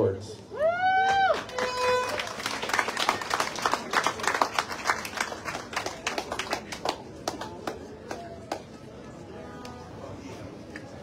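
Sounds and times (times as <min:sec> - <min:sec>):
crowd applauding: 0:00.9 - 0:08.6.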